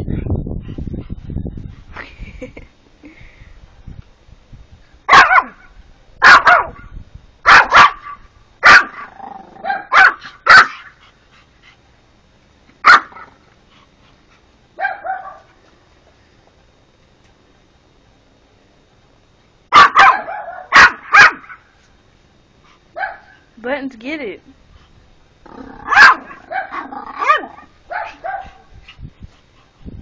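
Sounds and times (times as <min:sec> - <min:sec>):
puppy barking: 0:05.1 - 0:06.8, 0:07.5 - 0:10.9, 0:12.8 - 0:13.3, 0:14.8 - 0:15.5, 0:19.7 - 0:21.6, 0:23.0 - 0:23.4, 0:25.8 - 0:28.7.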